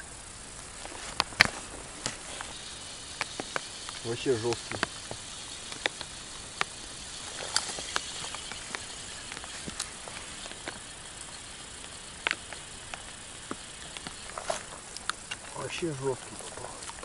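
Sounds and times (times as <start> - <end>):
steady outdoor hiss: 0.0 - 17.0
sharp ticks and taps: 0.6 - 17.0.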